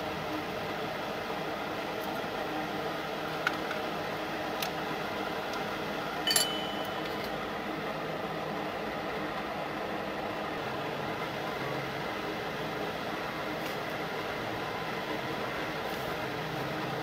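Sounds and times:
workshop background hiss: 0.0 - 17.0
sharp metallic clink: 6.3 - 7.4.

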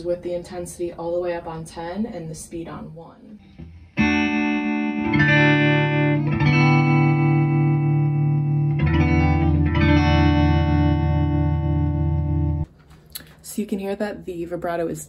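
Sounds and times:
electric guitar chords with vibrato: 3.5 - 12.7.

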